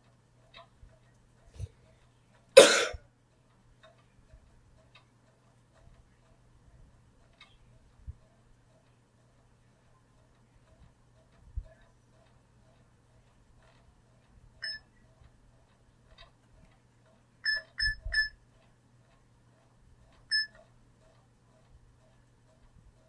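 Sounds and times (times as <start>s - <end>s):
faint even ticking: 0.0s - 23.0s
phone beeps: 14.6s - 14.8s, 17.5s - 18.4s, 20.3s - 20.6s.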